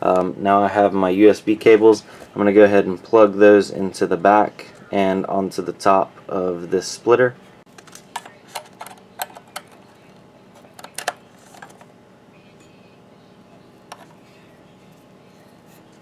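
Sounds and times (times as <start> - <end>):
cable plugs clicking into ports: 10.6 - 11.8.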